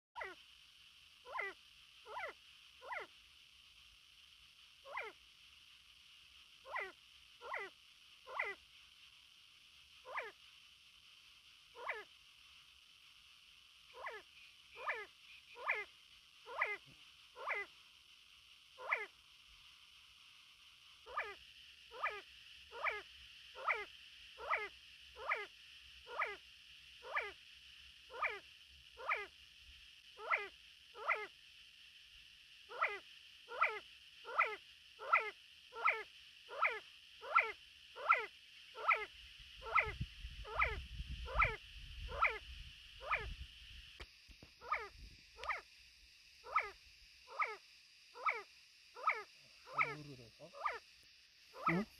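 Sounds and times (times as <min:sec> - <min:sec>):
partridge whistled calls: 0:01.2 - 0:03.1, 0:04.8 - 0:05.2, 0:06.6 - 0:08.6, 0:10.0 - 0:10.4, 0:11.7 - 0:12.1, 0:13.9 - 0:17.8, 0:18.8 - 0:19.2, 0:21.0 - 0:26.4, 0:27.0 - 0:27.4, 0:28.1 - 0:28.4, 0:29.0 - 0:29.3, 0:30.2 - 0:31.3, 0:32.7 - 0:42.4, 0:43.0 - 0:43.4, 0:44.6 - 0:45.6, 0:46.4 - 0:50.9, 0:51.5 - 0:51.9.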